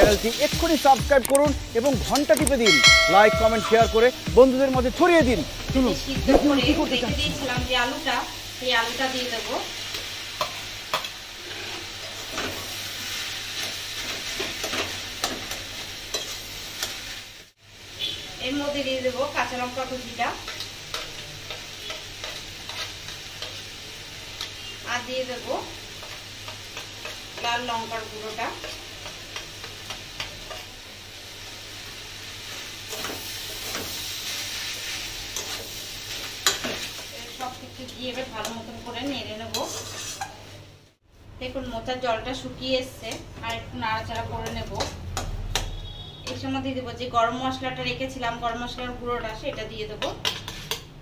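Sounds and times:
food sizzling in a pan: 0.0 - 51.0
spatula scraping a pan: 9.8 - 17.0, 20.4 - 24.8, 32.5 - 37.1, 39.4 - 40.5, 50.2 - 50.9
metal spatula scraping: 9.9 - 12.6, 20.5 - 23.8, 39.4 - 40.6, 50.2 - 50.9.

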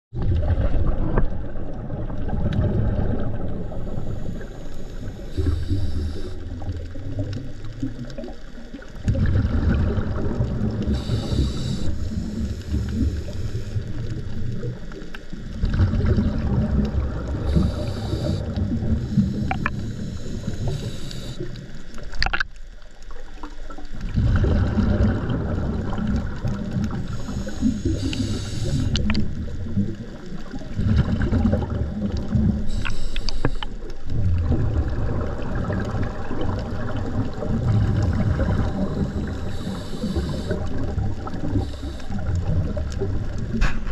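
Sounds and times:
muffled underwater rumble: 0.1 - 43.9
hissing breath: 4.0 - 6.6, 10.9 - 13.8, 17.4 - 21.5, 27.0 - 29.1, 32.6 - 33.7, 39.0 - 40.8, 41.4 - 42.4.

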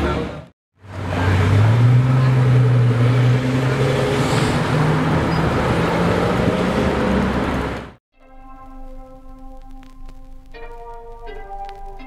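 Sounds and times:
car engine pulling away: 0.8 - 8.0.

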